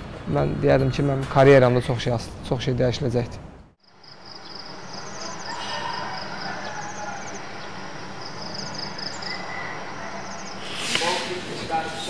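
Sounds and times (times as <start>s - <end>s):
insects chirping in trills: 3.8s - 11.0s
background hiss: 10.4s - 12.0s.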